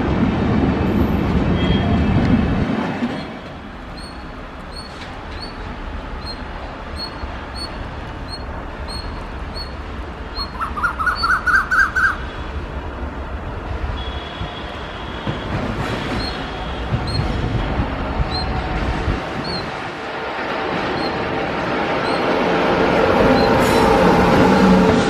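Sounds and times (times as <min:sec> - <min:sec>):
passenger train rushing past: 0:00.0 - 0:25.0
bird chirping: 0:06.2 - 0:12.2.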